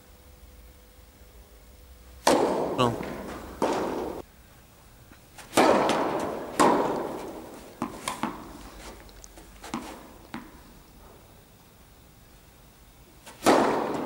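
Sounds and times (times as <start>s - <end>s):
tennis ball strikes echoing: 2.2s - 4.2s, 5.5s - 8.6s, 13.3s - 14.0s
ball bouncing on court: 5.6s - 8.5s, 9.7s - 10.6s.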